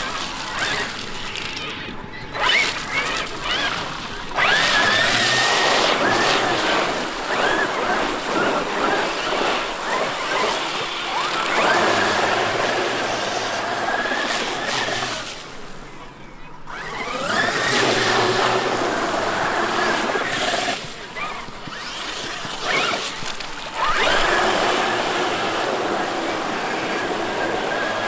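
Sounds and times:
electric motor whining: 0.0s - 15.8s, 16.7s - 28.0s
water splashing and spraying: 2.4s - 15.8s, 21.7s - 28.0s.

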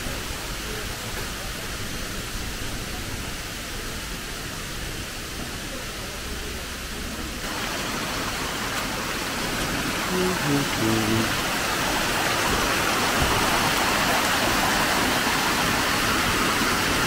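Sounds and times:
waterfall rushing: 7.4s - 17.0s.

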